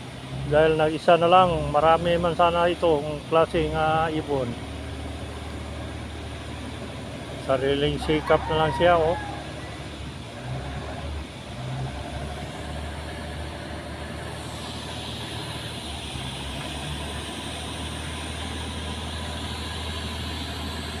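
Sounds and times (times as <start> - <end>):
ship diesel engine drone: 0.0 - 21.0
hiss: 14.2 - 21.0.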